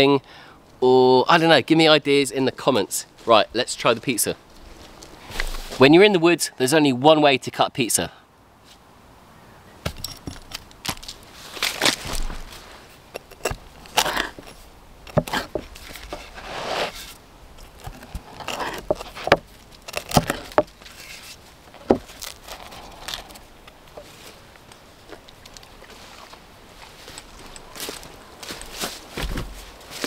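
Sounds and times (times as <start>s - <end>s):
pizza crust crunching: 13.2s - 14.5s, 15.1s - 23.5s.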